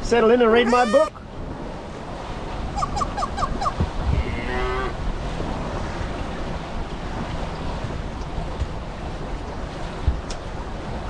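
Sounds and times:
rushing water: 0.0 - 11.0
wind: 0.0 - 11.0
quick high pips: 0.6 - 1.2.

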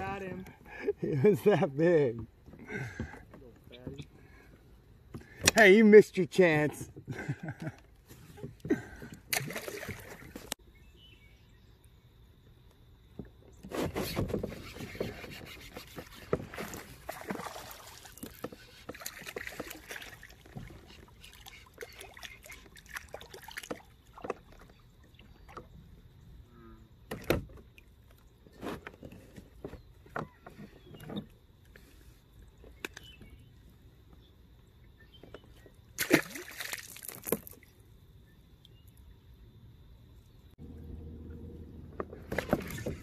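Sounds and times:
water splashing: 8.8 - 10.6, 14.4 - 25.8, 35.9 - 37.7, 40.6 - 43.0.

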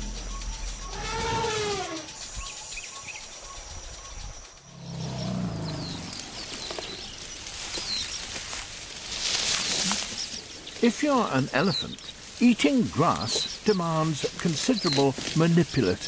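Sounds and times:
elephant calls: 0.4 - 2.2.

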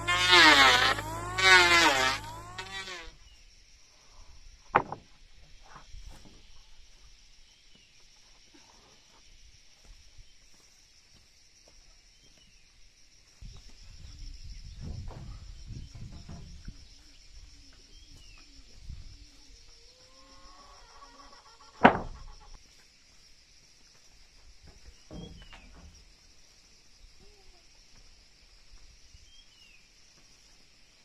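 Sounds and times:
insects chirring: 0.0 - 31.0
board knocking against board: 4.8 - 5.0, 21.8 - 22.2.

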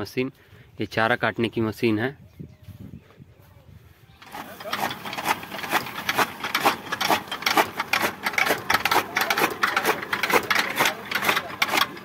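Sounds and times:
chaff cutter chopping fodder: 4.2 - 12.0.

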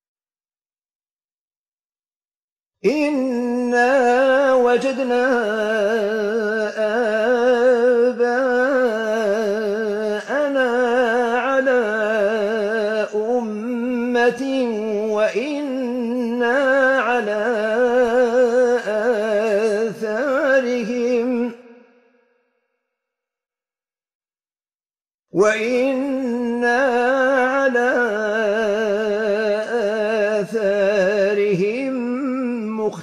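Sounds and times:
man chanting with vibrato: 2.8 - 21.7, 25.4 - 33.0.

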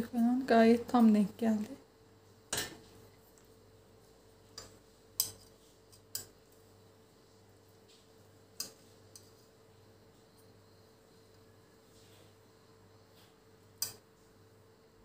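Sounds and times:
metal tongs clicking on pot: 4.6 - 6.4, 8.6 - 9.3, 13.8 - 14.0.

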